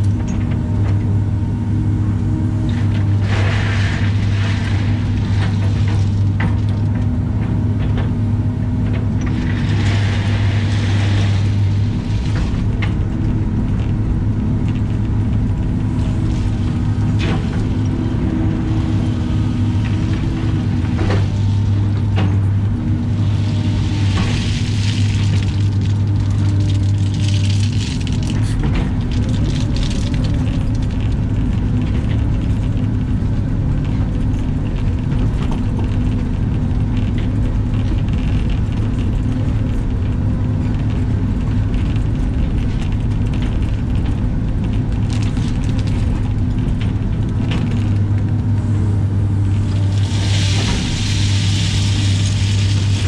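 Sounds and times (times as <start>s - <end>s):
excavator diesel engine humming: 0.0s - 53.0s
gravel dropping from bucket: 9.3s - 13.0s, 15.9s - 31.6s, 49.4s - 53.0s.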